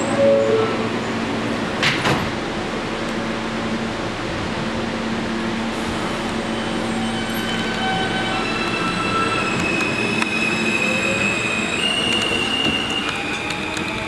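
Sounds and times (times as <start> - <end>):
subway car humming: 0.0 - 14.0
thin whining tones of train: 0.0 - 14.0.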